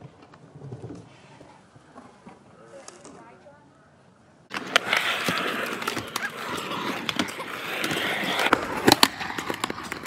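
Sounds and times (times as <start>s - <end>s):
skateboard clicks and clacks: 4.5s - 10.0s
skateboard wheels rolling on concrete: 4.5s - 10.0s.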